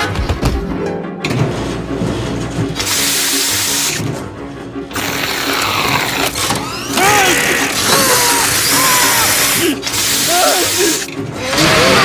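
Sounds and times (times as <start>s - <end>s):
cartoon music: 5.1s - 12.0s
rushing hissing noise: 8.1s - 11.2s.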